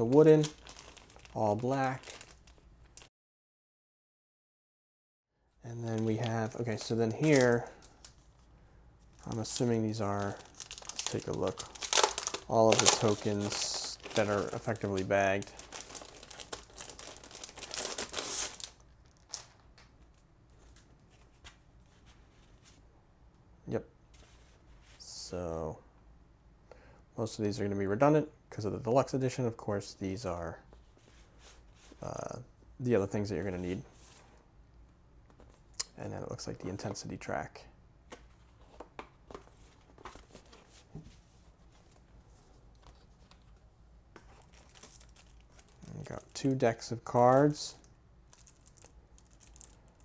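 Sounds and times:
cards rustling: 0.0 - 3.1, 5.8 - 8.4, 9.0 - 19.6, 38.1 - 47.7, 48.3 - 50.0
plastic sleeve crinkling: 0.0 - 3.1, 5.8 - 8.4, 9.1 - 21.5, 44.2 - 50.0.

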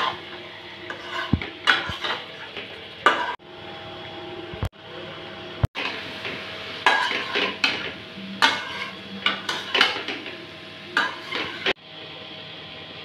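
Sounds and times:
spatula scraping metal pan: 0.0 - 3.4, 5.8 - 10.3, 11.0 - 11.8
frying hiss: 5.7 - 11.8.

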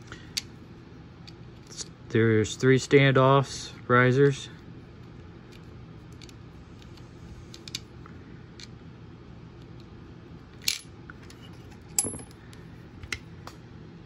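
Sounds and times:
metallic ring: 12.0 - 12.4.

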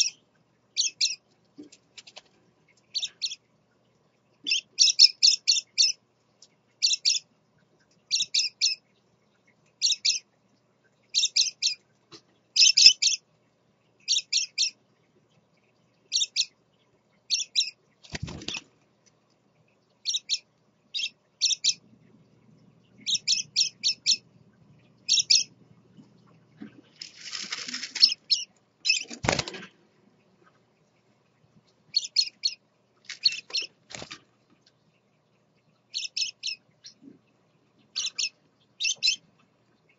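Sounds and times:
parakeets chirping: 0.8 - 1.2, 4.4 - 6.0, 6.8 - 7.2, 8.1 - 8.8, 9.8 - 10.2, 11.1 - 11.8, 12.6 - 13.2, 14.0 - 14.8, 16.1 - 16.5, 17.3 - 18.6, 20.0 - 21.9, 22.9 - 24.3, 25.0 - 25.6, 27.3 - 29.2, 31.9 - 32.6, 33.2 - 33.7, 35.9 - 37.0, 37.9 - 39.3
wings fluttering: 1.7 - 2.4, 18.0 - 18.8, 26.6 - 29.8, 33.0 - 34.3.

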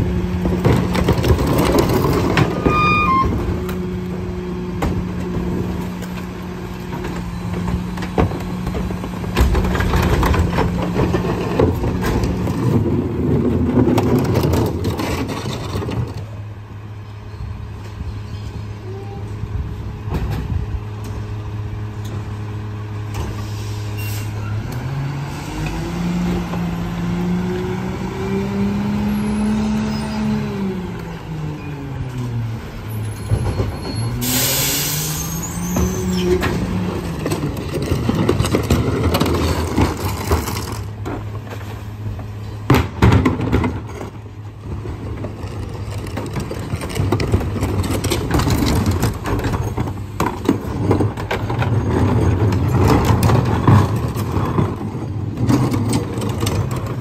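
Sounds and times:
diesel engine revving: 19.4 - 42.4
air brake hiss: 23.3 - 24.4, 34.2 - 35.4.

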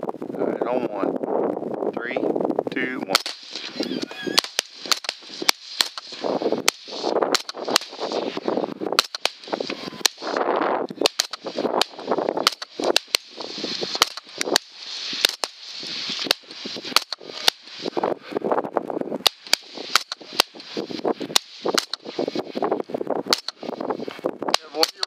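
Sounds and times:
rapid rifle fire: 3.1 - 3.7, 4.4 - 10.4, 11.0 - 17.8, 19.2 - 22.5, 23.3 - 23.7, 24.5 - 25.0.

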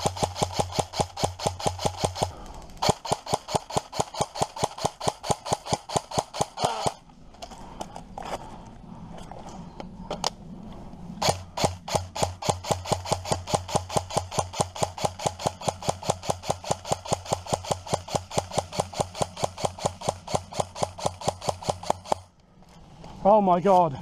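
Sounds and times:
airsoft rifle firing: 0.0 - 7.0, 11.2 - 22.3.

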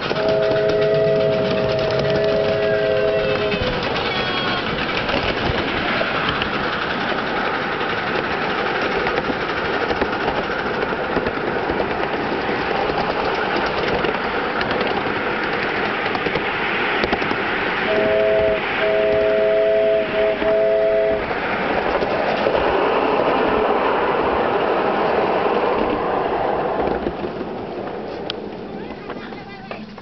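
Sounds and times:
clatter of wheels on track: 0.0 - 30.0
miniature steam train running: 0.0 - 30.0.

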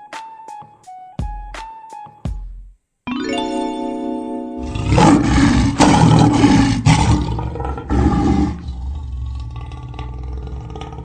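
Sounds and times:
animal roaring: 4.6 - 11.0.

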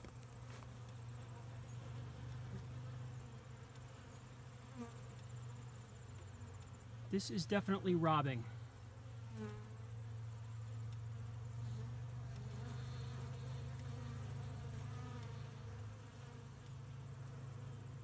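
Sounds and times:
bee flying past: 0.0 - 7.8, 8.7 - 18.0
honeybees buzzing around a hive: 0.0 - 18.0.

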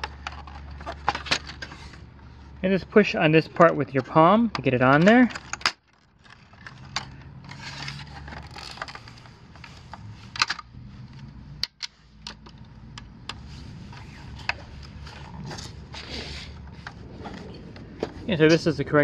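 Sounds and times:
plastic parts clicking: 0.0 - 2.0, 3.6 - 15.2
low steady hum: 0.0 - 19.0.

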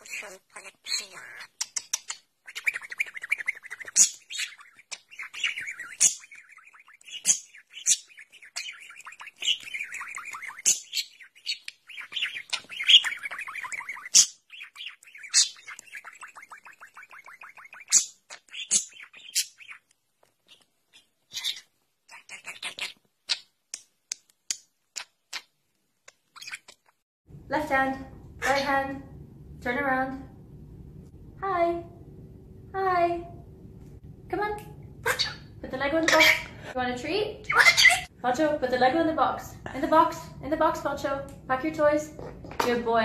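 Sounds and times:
budgerigar warbling and chirping: 0.0 - 23.5, 26.3 - 27.0, 35.0 - 36.6, 37.4 - 38.1.

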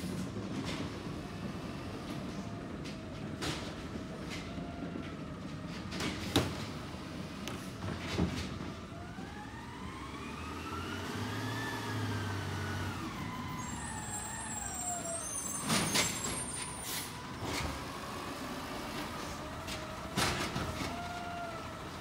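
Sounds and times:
garbage truck engine whine: 0.0 - 22.0
air brake hisses: 14.1 - 17.2.

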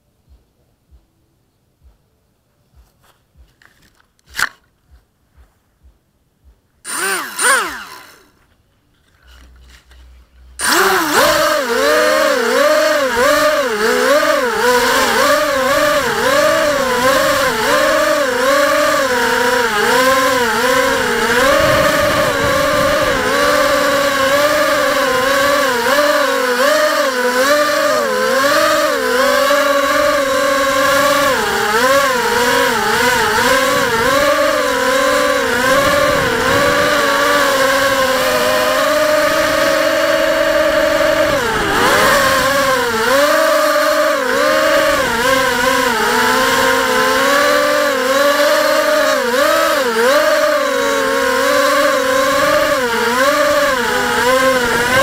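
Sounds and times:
drone motors whining: 6.8 - 55.0.

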